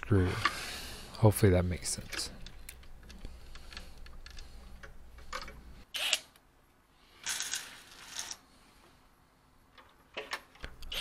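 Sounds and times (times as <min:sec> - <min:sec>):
small parts clicking and rattling: 0:02.0 - 0:06.2, 0:07.2 - 0:08.4.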